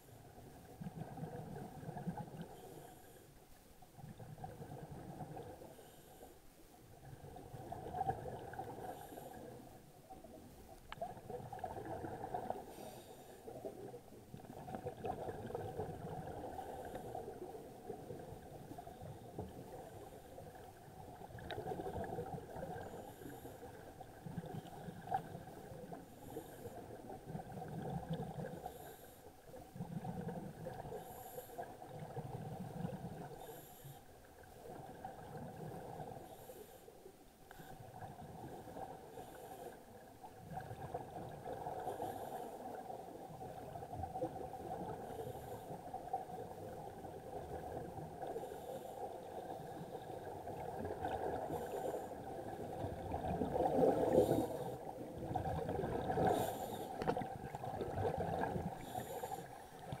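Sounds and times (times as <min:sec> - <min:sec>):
steady underwater drone: 0:00.0 - 1:00.0
regulator hissing inhalations: 0:58.8 - 0:59.7.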